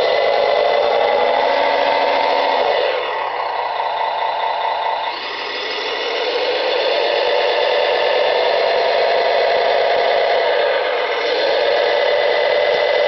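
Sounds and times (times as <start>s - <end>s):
simulated diesel engine from speaker: 0.0s - 13.0s.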